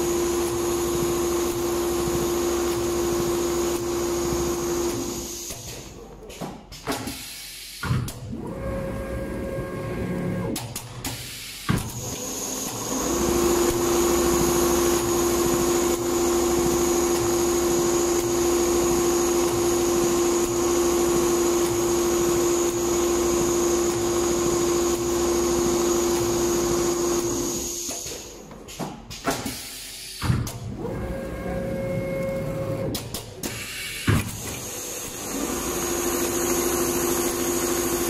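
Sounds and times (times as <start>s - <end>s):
sewing machine whirring: 12.0s - 27.9s, 34.4s - 38.0s.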